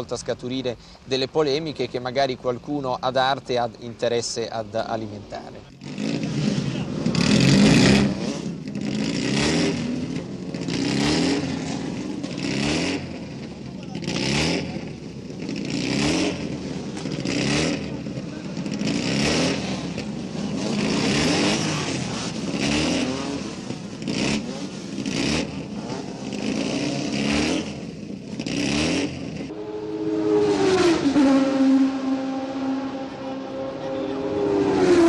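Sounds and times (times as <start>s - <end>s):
racing cars passing at high revs: 5.8s - 35.0s.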